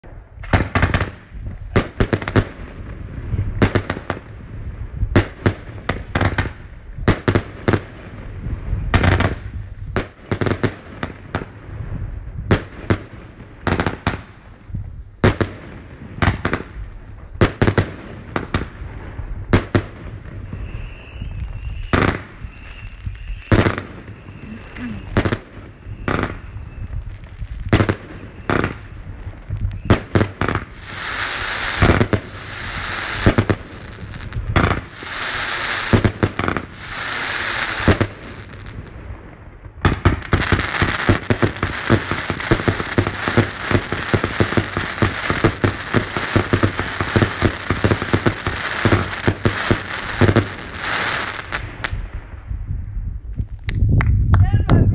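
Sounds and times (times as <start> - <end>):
faint high whistle: 20.4 - 27.2, 29.6 - 30.1.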